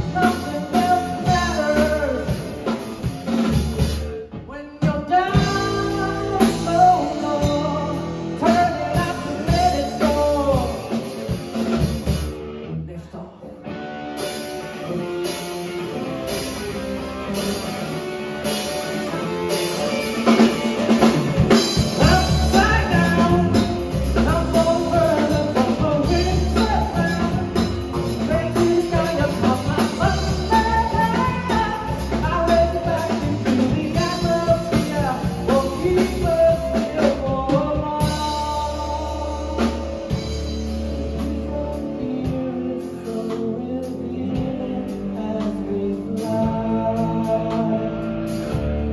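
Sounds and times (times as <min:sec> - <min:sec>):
live rock band playing: 0:00.0 - 0:48.9
pulsing bass line: 0:19.0 - 0:48.9.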